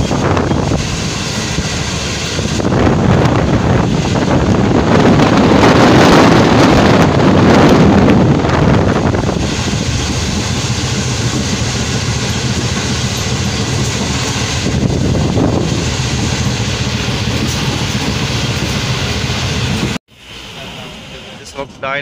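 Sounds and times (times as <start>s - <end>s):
rushing air noise: 0.0s - 21.8s
train wheels rumbling on track: 0.0s - 22.0s.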